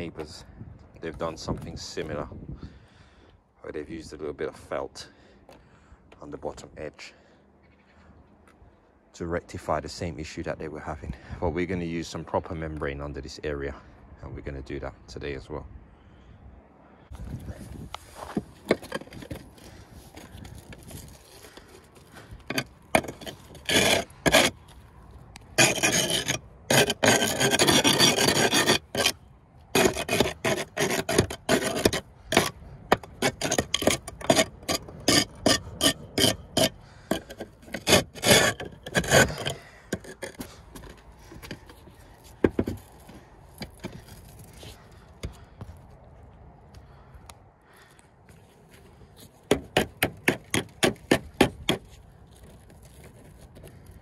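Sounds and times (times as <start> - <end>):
chisel scraping mortar: 17.3 - 24.8, 25.4 - 45.4, 49.4 - 54.0.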